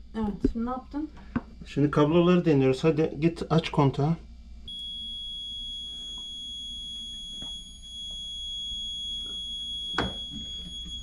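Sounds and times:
high-pitched electronic alarm tone: 0:04.7 - 0:11.0.

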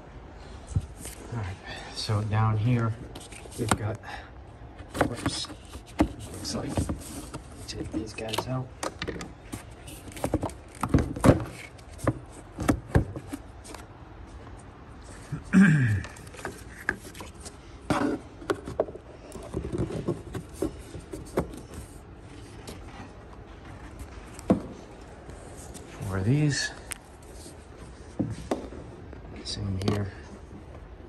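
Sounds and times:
clicks knocks and scrapes of hand work: 0:04.8 - 0:13.9, 0:16.0 - 0:26.1.

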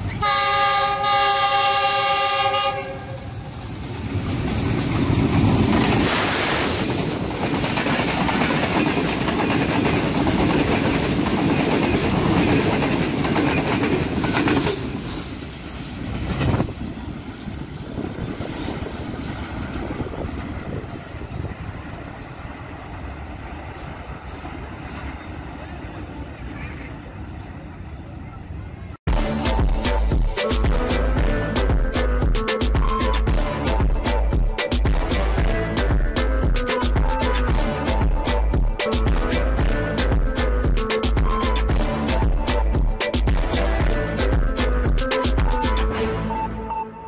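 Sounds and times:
locomotive horn: 0:00.0 - 0:03.4, 0:29.1 - 0:32.2, 0:32.9 - 0:34.2, 0:34.9 - 0:40.6, 0:41.2 - 0:42.6, 0:43.3 - 0:44.8, 0:45.6 - 0:47.0
train passing at speed: 0:00.0 - 0:47.0
wheels clattering over rail joints: 0:03.4 - 0:17.3.

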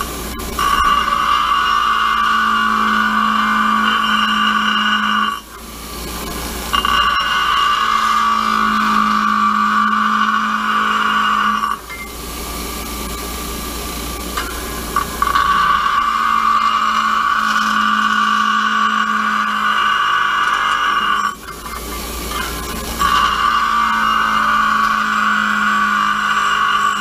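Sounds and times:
grinder motor hum: 0:00.0 - 0:27.0
grinder wheel grinding metal: 0:00.0 - 0:27.0.

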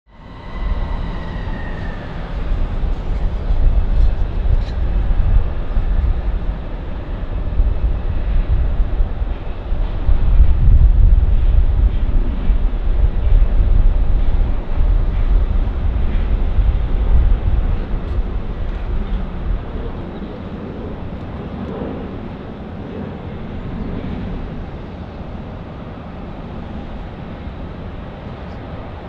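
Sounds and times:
distant jet engine rumble: 0:00.1 - 0:29.0
wind rumble on microphone: 0:00.1 - 0:29.0.

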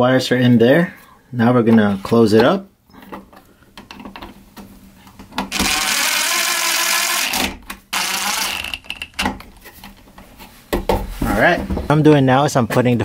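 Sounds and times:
impact driver driving screws: 0:05.5 - 0:09.3.

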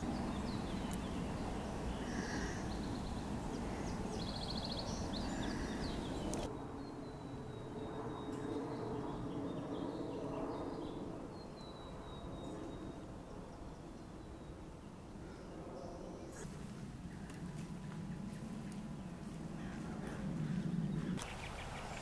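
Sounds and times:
wild birds chirping: 0:00.0 - 0:22.0.

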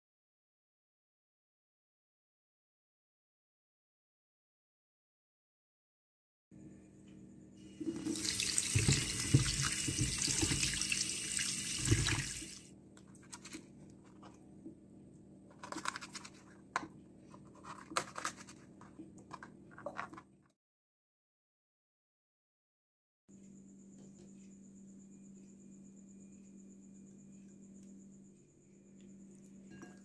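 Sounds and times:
tap water running into sink: 0:07.8 - 0:12.6.

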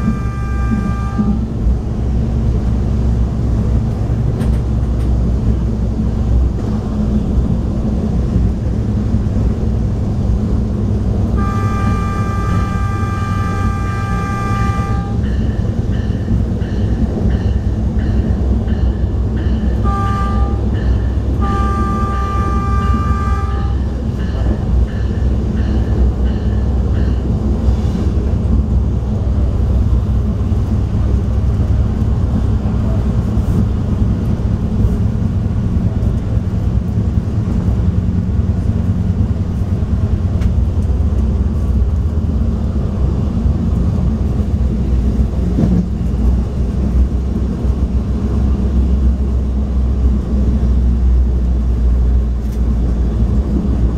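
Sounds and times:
two-note train horn: 0:00.0 - 0:01.6, 0:11.4 - 0:15.6, 0:19.7 - 0:24.6
train rumbling on track: 0:00.0 - 0:53.9.

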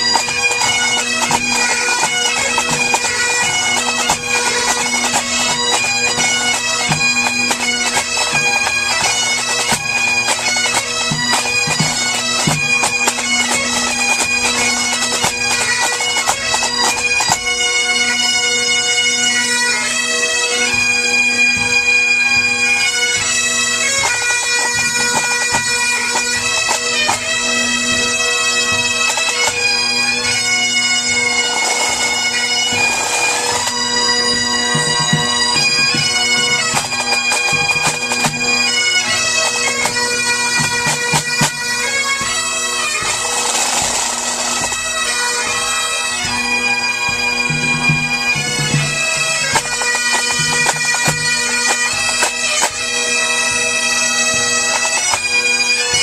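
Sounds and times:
bagpipes playing a tune: 0:00.0 - 0:56.0
drum strokes: 0:31.2 - 0:38.4, 0:47.1 - 0:52.4.

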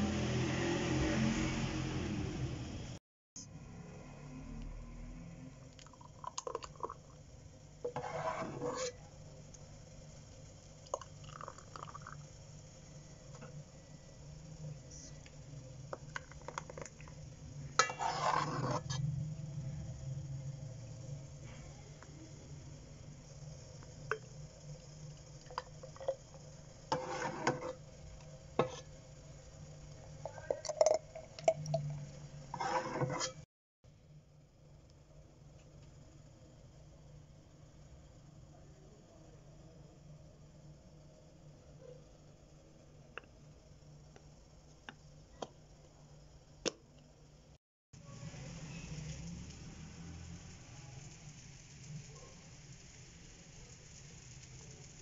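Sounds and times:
thick liquid pouring into glass: 0:05.8 - 0:07.2, 0:10.8 - 0:12.2.

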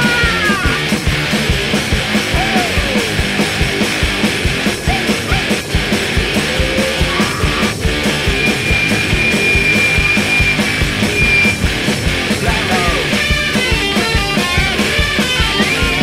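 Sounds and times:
noise rock music: 0:00.0 - 0:16.0
pounding drum strikes: 0:00.8 - 0:16.0.

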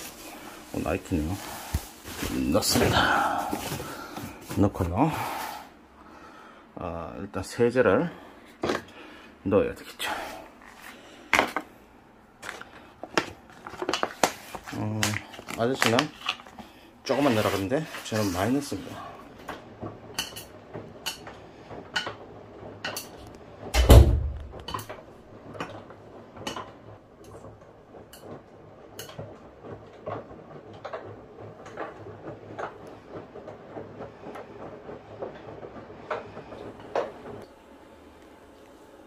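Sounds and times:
washing machine load knocking: 0:19.5 - 0:25.1
washing machine thump: 0:23.7 - 0:24.8.

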